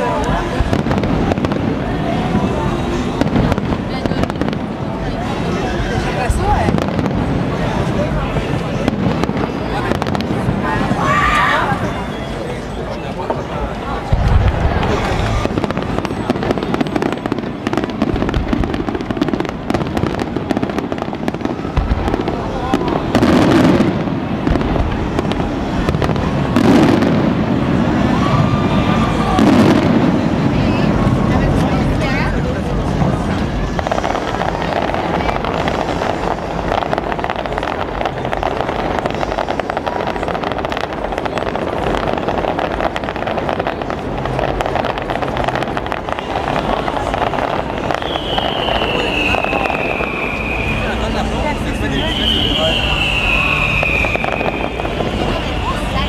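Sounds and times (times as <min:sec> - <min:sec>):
noisy rumble: 0:00.0 - 0:56.0
heavy firework boom: 0:14.0 - 0:56.0.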